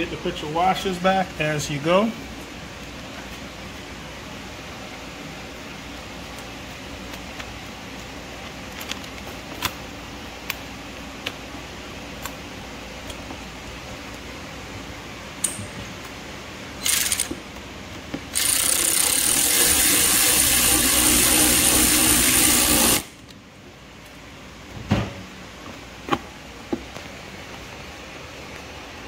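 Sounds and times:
power drill driving screw: 16.8s - 17.3s, 18.4s - 23.1s.

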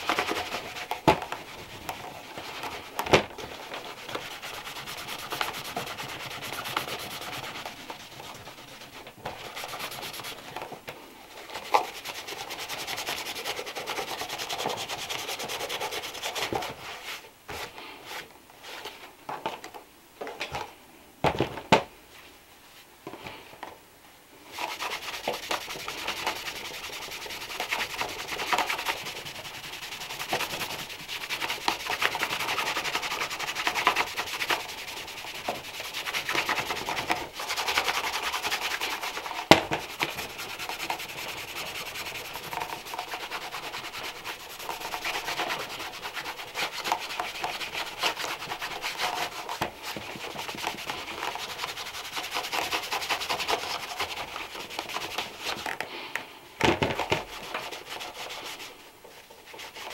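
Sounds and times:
rubbing on leather shoe: 0.0s - 10.6s, 11.5s - 17.2s, 24.5s - 55.7s, 57.2s - 59.9s.

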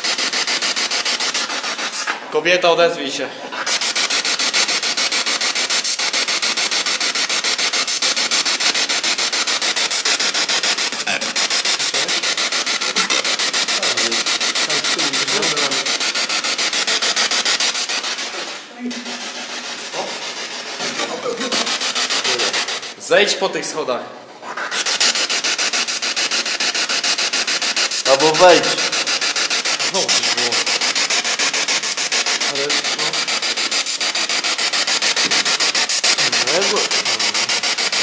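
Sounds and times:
chopped radio static: 7.7s - 16.4s
brief voice-like snatches: 11.0s - 12.2s.

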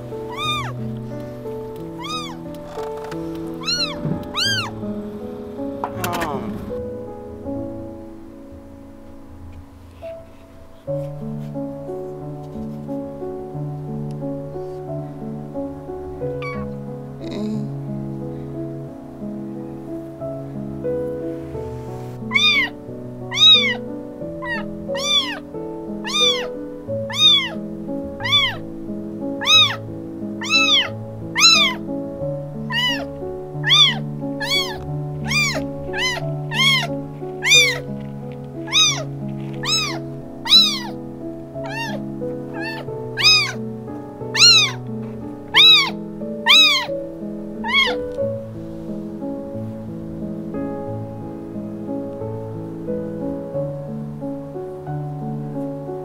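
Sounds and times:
background music: 0.0s - 56.0s
kitten meowing: 0.2s - 0.8s, 1.8s - 2.8s, 3.5s - 4.8s, 16.3s - 17.7s, 22.3s - 27.6s, 28.2s - 28.6s, 29.4s - 31.8s, 32.6s - 37.9s, 38.6s - 41.0s, 41.6s - 43.6s, 44.3s - 44.8s, 45.5s - 47.0s, 47.6s - 48.2s.

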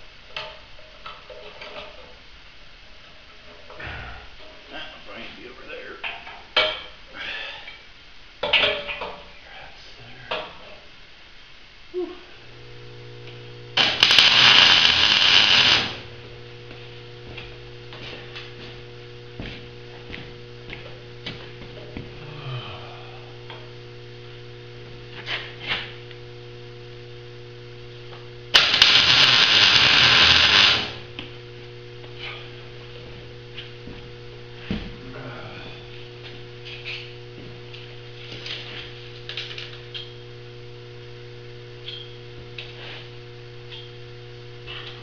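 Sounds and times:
steady electrical hum: 0.0s - 45.0s
electric winch running: 12.5s - 16.4s, 28.5s - 31.1s.

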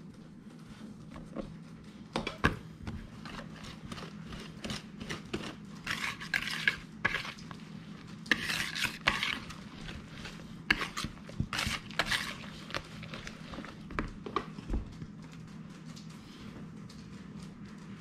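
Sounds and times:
whisk clicking and scraping bowl: 2.8s - 14.6s
whisk swishing strokes: 3.0s - 13.9s.

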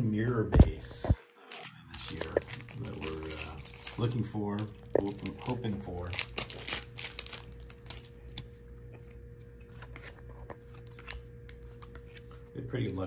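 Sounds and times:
faint steady hum: 0.0s - 13.0s
trading cards rustling and clicking: 0.5s - 12.4s.

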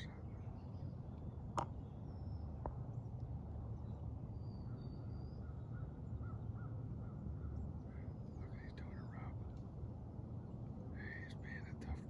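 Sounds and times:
distant bird calls: 0.0s - 9.6s.

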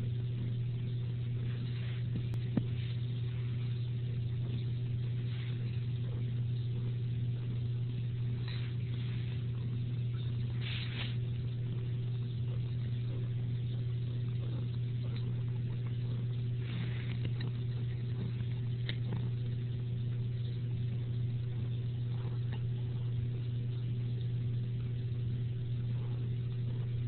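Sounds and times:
steady low hum: 0.0s - 27.0s
faint scrapes: 10.5s - 11.2s.

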